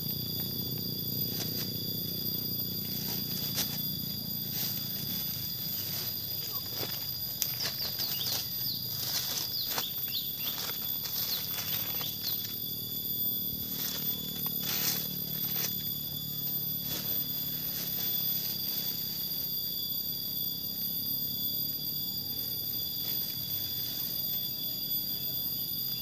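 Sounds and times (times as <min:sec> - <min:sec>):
high-pitched insect buzzing: 0:00.0 - 0:26.0
bird chirps: 0:07.6 - 0:12.6.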